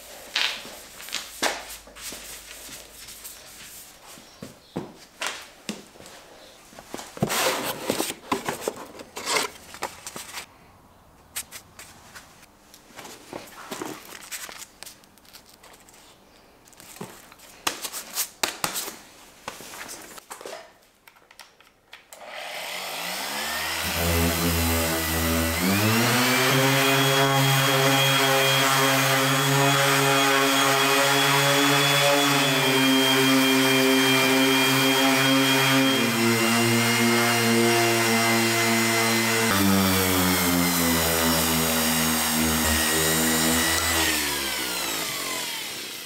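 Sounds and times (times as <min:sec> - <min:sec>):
orbital sander whining: 0:22.2 - 0:46.0.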